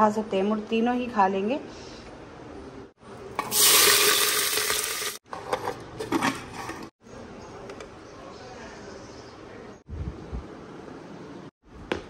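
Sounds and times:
hot oil sizzling: 0:03.4 - 0:05.2.

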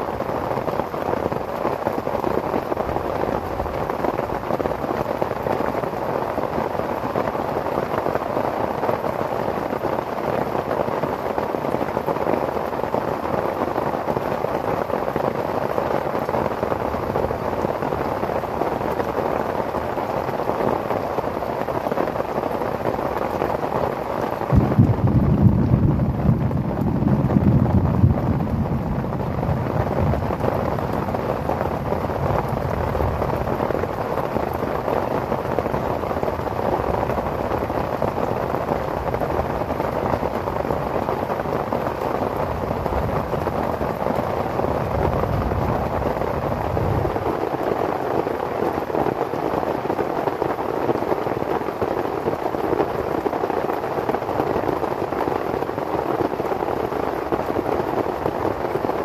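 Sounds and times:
heavy rain on a tent: 0:00.0 - 0:59.0
low rumble: 0:24.5 - 0:29.8.

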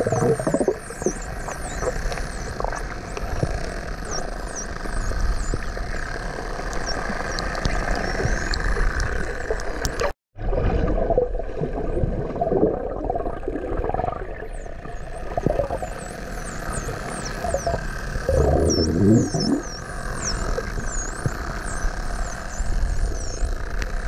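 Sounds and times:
dolphins whistling underwater: 0:00.0 - 0:03.2, 0:14.4 - 0:23.5
low underwater rumble: 0:17.3 - 0:19.8.

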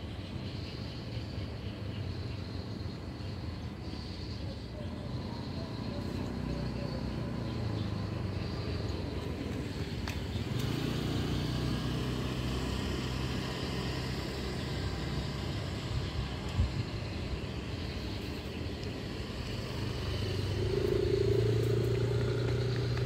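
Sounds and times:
vehicle engine running: 0:05.0 - 0:23.0.

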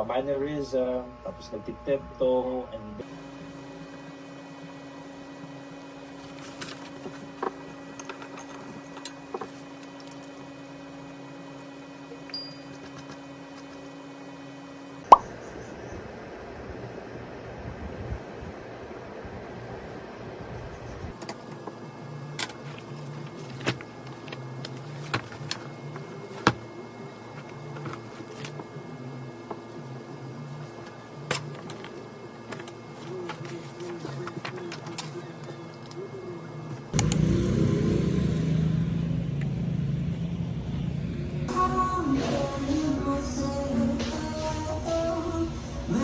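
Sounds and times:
electrical hum: 0:00.0 - 0:46.0
paper rustling and tapping: 0:31.3 - 0:35.2.

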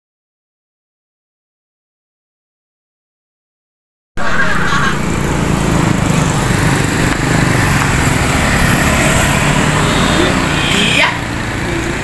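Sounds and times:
dirt bike engine running: 0:04.6 - 0:12.0.

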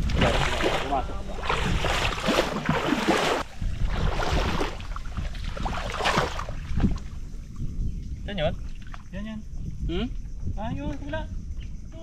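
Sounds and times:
footsteps sloshing through water: 0:00.0 - 0:07.2
wind rumble on microphone: 0:00.0 - 0:12.0.

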